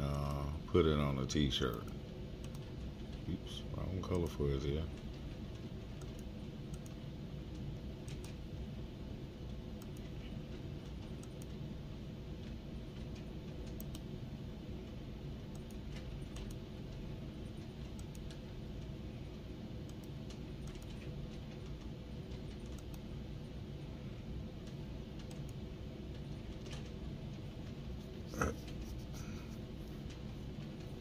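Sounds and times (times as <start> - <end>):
steady low hum: 0.0 - 31.0
mouse and keyboard clicks: 22.6 - 23.0.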